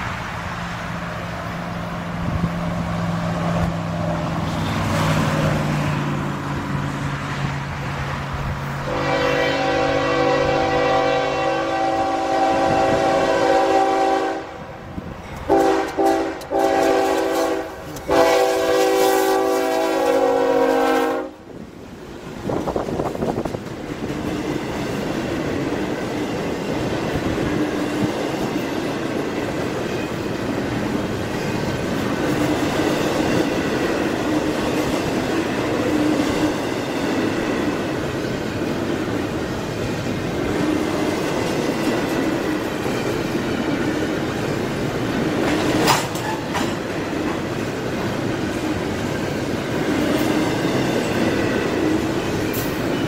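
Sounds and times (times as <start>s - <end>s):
train wheels rumbling and clattering: 0.0s - 20.6s, 21.5s - 53.0s
locomotive horn blasts: 8.8s - 14.8s, 15.5s - 21.4s.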